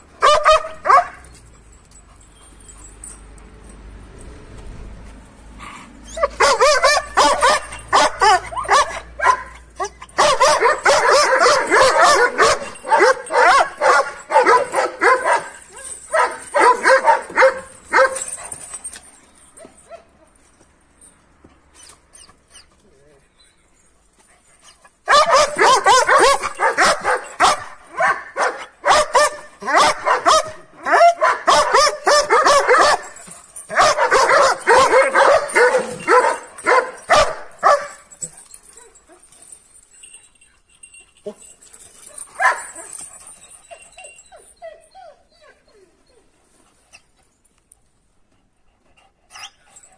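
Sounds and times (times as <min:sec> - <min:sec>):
large dog barking excitedly: 0:00.0 - 0:01.4, 0:06.2 - 0:18.8, 0:25.0 - 0:39.3, 0:41.3 - 0:43.9.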